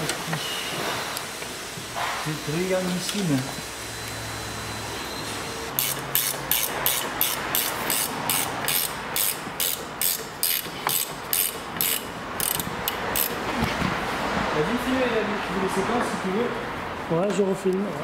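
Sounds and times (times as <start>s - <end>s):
ratchet wrench clicking: 5.7s - 13.4s.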